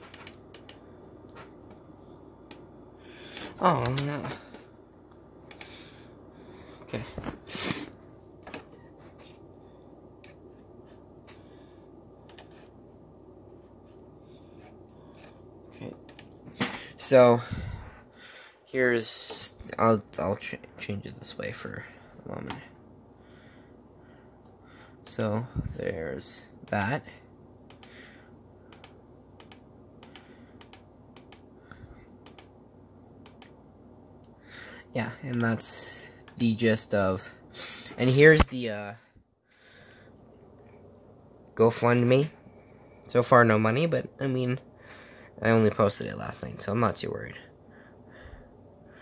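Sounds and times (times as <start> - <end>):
computer clicks: 0.0 - 0.8, 12.2 - 12.6, 27.7 - 28.0, 28.7 - 31.5, 32.2 - 32.5, 33.2 - 33.6
low room noise: 0.0 - 49.0.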